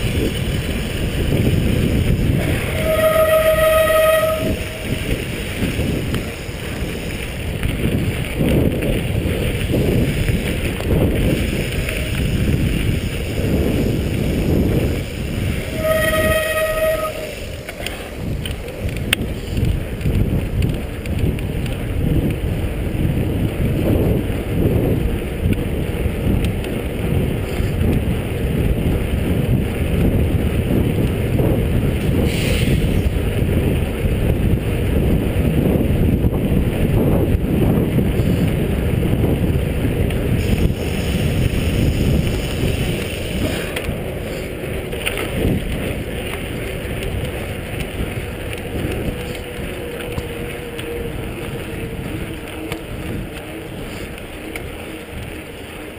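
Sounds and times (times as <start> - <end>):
wind buffeting microphone: 0.0 - 55.9.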